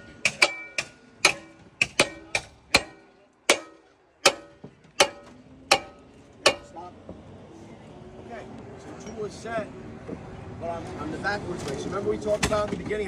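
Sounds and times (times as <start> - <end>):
metal-on-metal striking blows: 0.0 - 6.8.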